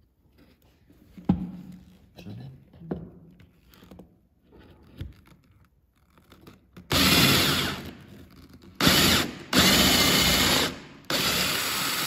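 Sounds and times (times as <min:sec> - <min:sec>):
power drill boring into wood: 0:06.9 - 0:08.1, 0:08.8 - 0:12.0.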